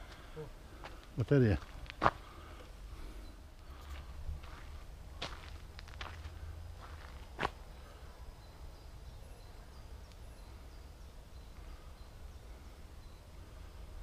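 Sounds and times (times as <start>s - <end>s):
bird chirps: 6.9s - 14.0s.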